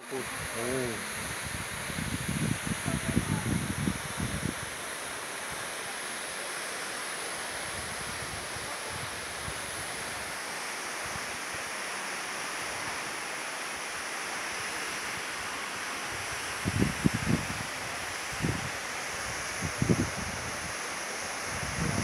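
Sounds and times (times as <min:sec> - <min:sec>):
wind buffeting microphone: 0:00.2 - 0:04.7, 0:16.6 - 0:18.7, 0:19.3 - 0:20.7, 0:21.5 - 0:22.0.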